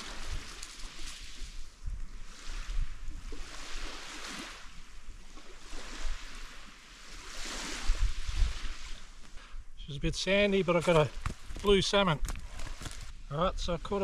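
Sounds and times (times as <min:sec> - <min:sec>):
wind rumbling on microphone: 0:00.0 - 0:09.8
small waves washing onto sand: 0:00.0 - 0:14.0.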